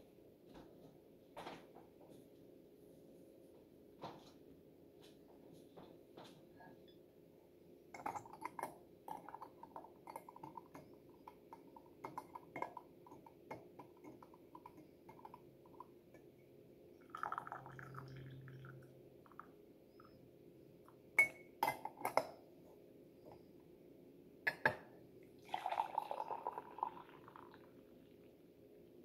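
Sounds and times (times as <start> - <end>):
teapot lid clinking: 8.0 - 15.8, 21.2 - 22.3
tea dripping into pot: 8.0 - 16.4, 17.0 - 19.5, 25.4 - 27.8.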